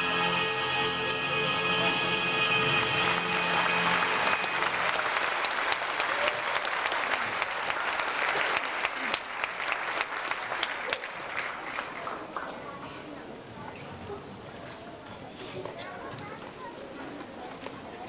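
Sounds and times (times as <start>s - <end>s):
song music: 0.0s - 5.7s
audience applauding: 1.1s - 12.7s.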